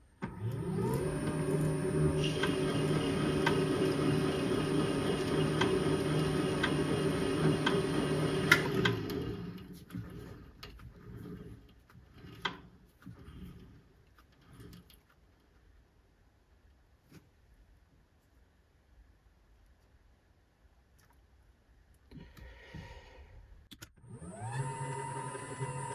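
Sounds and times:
lathe motor humming: 0:00.3 - 0:12.5, 0:24.1 - 0:25.9.

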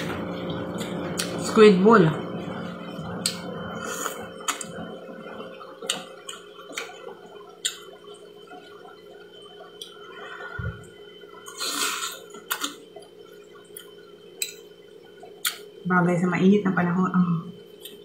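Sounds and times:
wet chewing: 0:03.0 - 0:09.0, 0:15.3 - 0:15.7
slurping noodles: 0:11.5 - 0:12.8.

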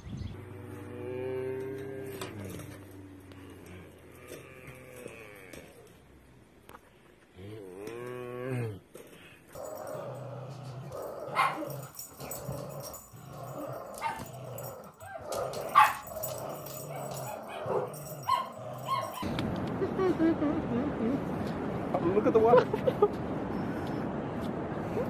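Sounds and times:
dogs growling in play: 0:00.3 - 0:06.3, 0:07.3 - 0:19.7
dog barks: 0:11.3 - 0:12.5, 0:13.9 - 0:19.3.

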